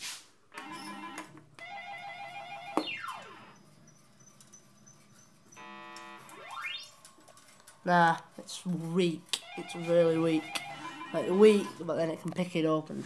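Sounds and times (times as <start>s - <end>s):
claw machine electronic game tune: 0.6s - 3.6s, 5.6s - 7.0s, 9.3s - 11.9s
electronic falling sweep: 6.3s - 6.9s.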